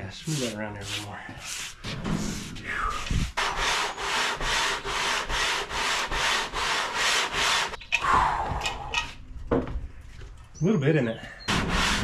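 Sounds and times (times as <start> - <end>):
metal scrubbed on sandpaper: 0.0 - 7.8, 11.5 - 12.0.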